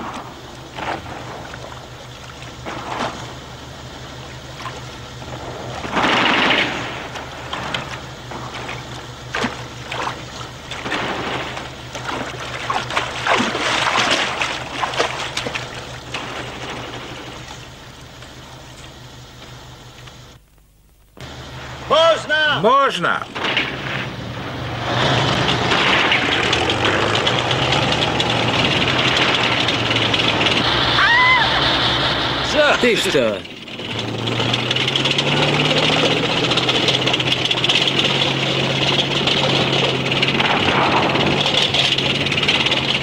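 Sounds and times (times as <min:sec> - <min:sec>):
water splashing from wading: 0:00.0 - 0:18.8
low hum: 0:00.0 - 0:43.0.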